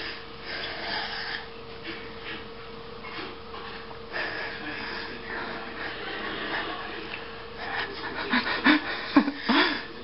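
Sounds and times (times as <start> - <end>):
cat breathing and snuffling: 0.0 - 2.5, 3.1 - 6.0
faint television hum: 0.0 - 10.0.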